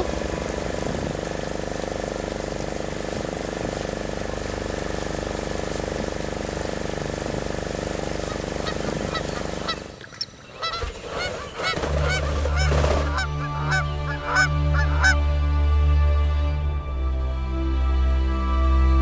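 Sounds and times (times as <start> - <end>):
seabirds calling: 0.0 - 4.7, 6.3 - 15.5
background music with low drone: 0.0 - 10.4, 11.5 - 19.0
motorboat engine humming: 0.0 - 19.0.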